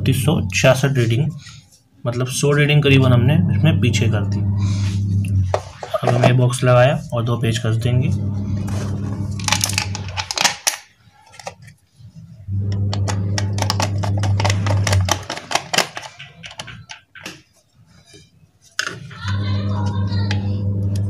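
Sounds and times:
steady low hum: 0:02.8 - 0:10.4, 0:12.0 - 0:15.4, 0:19.2 - 0:21.0
plastic casing clicking and knocking: 0:09.4 - 0:11.8, 0:12.9 - 0:17.6.

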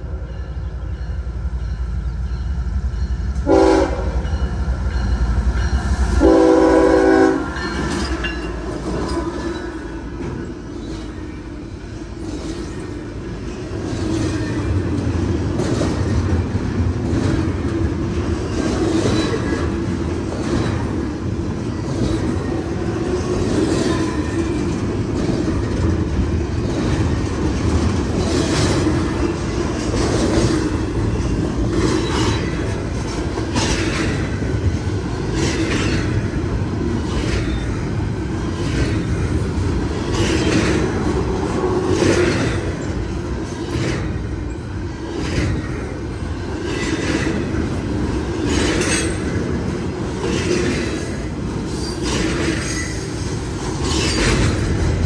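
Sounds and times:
train cars rolling on rails: 0:00.0 - 0:55.0
train horn blasts: 0:03.4 - 0:04.4, 0:06.1 - 0:07.6
wheels clacking over rail joints: 0:07.4 - 0:55.0.

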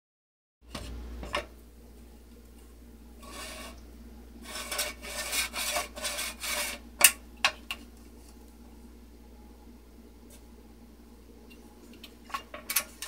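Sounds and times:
plastic scraping on plastic: 0:03.2 - 0:03.8, 0:04.4 - 0:06.9.

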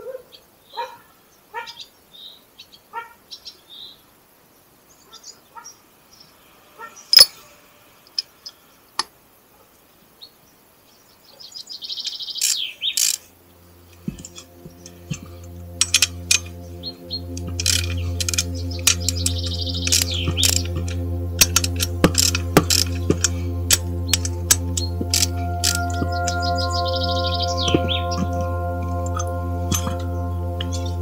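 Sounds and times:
small birds chirping: 0:08.0 - 0:31.0
steady low hum: 0:13.2 - 0:31.0.

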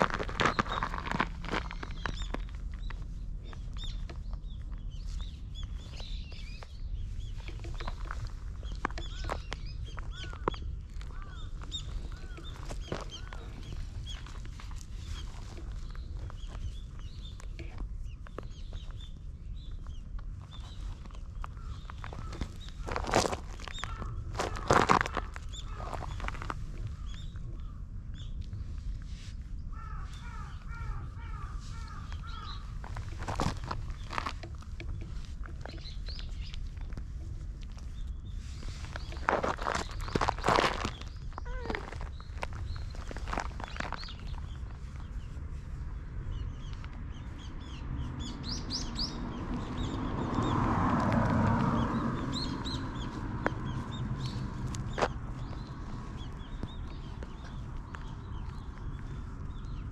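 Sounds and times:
bird calling: 0:00.0 - 0:19.2, 0:19.9 - 0:28.3, 0:29.7 - 0:37.0, 0:37.9 - 0:45.3
low rumble: 0:00.0 - 0:59.9.

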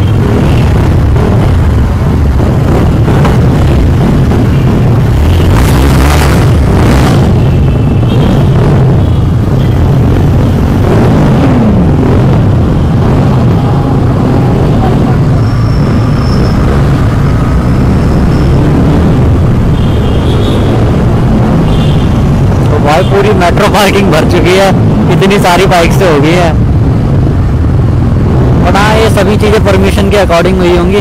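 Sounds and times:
motorcycle engine rumble: 0:00.0 - 0:29.8
other motorcycles running: 0:00.0 - 0:31.0.

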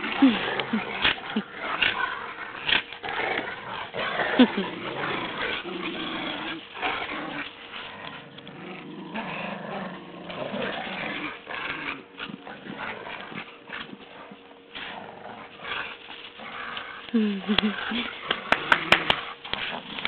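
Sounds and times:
dogs play-growling: 0:00.0 - 0:20.0.

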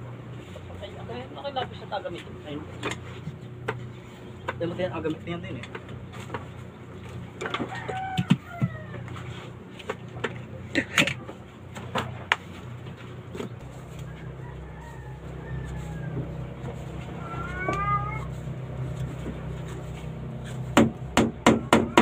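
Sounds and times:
steady low hum: 0:00.0 - 0:22.0
wavering animal call: 0:14.1 - 0:18.5
hammer knocking on wood: 0:20.8 - 0:22.0.

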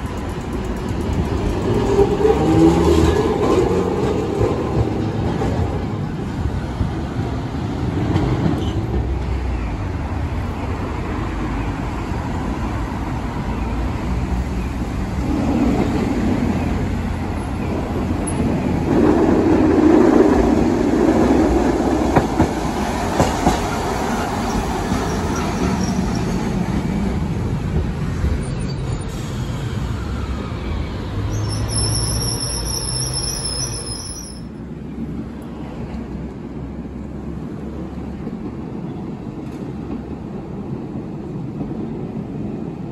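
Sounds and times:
streetcar motor and gear growl: 0:00.0 - 0:42.9
high wheel squeal: 0:28.5 - 0:34.6.

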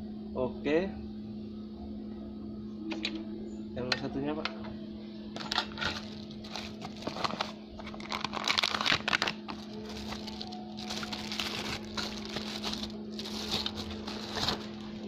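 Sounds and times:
steady low hum: 0:00.0 - 0:15.0
plastic bags crinkling: 0:05.8 - 0:15.0.

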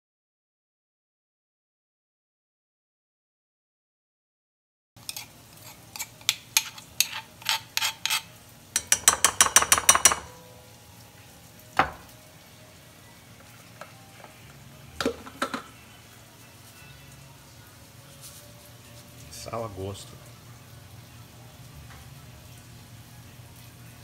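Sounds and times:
metal spoon clinking in bowl: 0:05.0 - 0:10.4.

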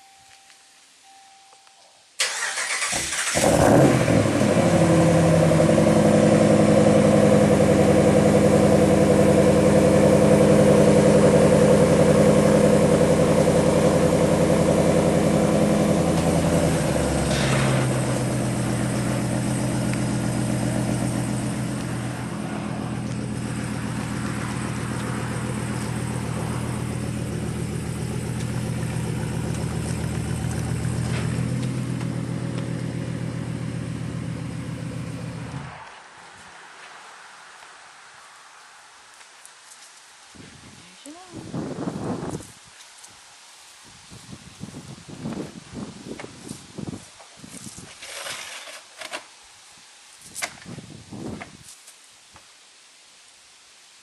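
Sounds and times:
vee eight engine idling: 0:02.3 - 0:35.7.

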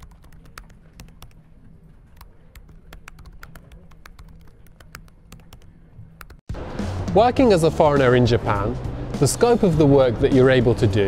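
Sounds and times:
laptop keyboard typing: 0:00.0 - 0:06.4.

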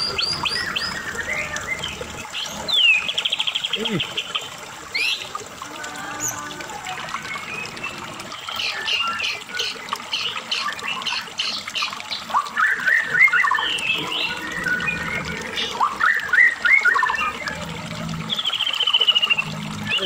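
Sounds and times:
bird singing chirps and whistles: 0:00.0 - 0:03.8, 0:07.2 - 0:17.6, 0:18.3 - 0:20.0.

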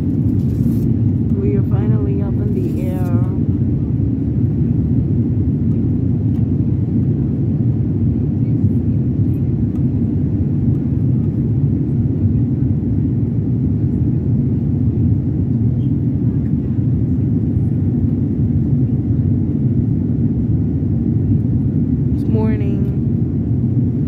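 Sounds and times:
airliner engines rumbling in cabin: 0:00.0 - 0:24.0.

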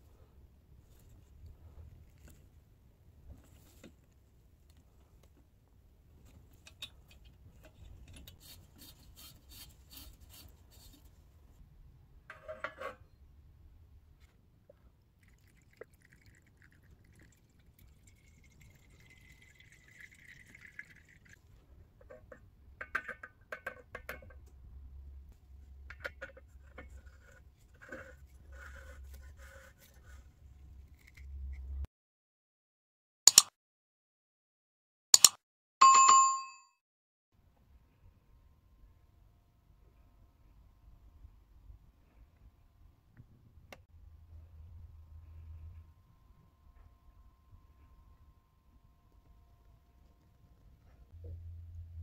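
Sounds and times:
liquid gurgling through funnel: 0:15.2 - 0:21.4.

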